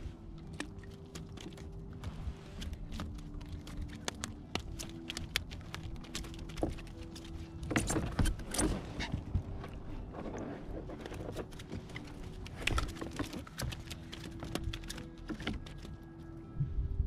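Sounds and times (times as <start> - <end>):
fishing tackle clicks and knocks: 0.4 - 16.3.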